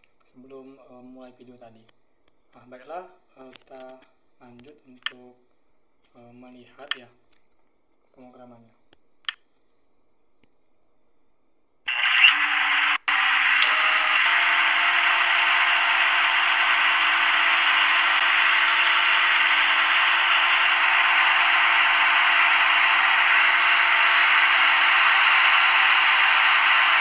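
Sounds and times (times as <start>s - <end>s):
lathe whirring hiss: 11.9s - 27.0s.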